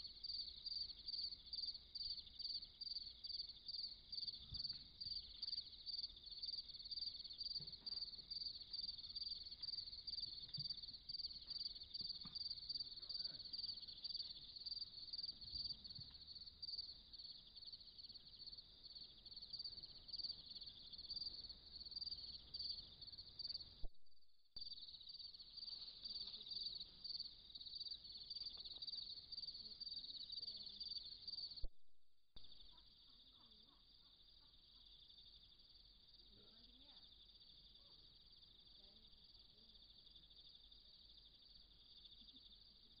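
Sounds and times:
crickets trilling: 0.0 - 23.7, 24.6 - 31.6.

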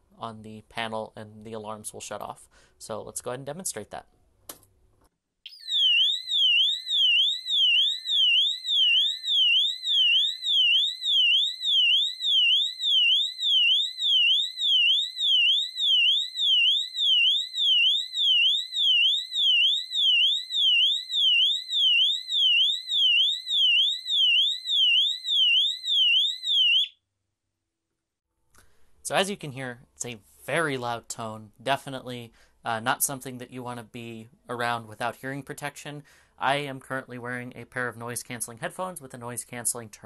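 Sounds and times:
fire alarm siren sweeping: 5.5 - 27.0.

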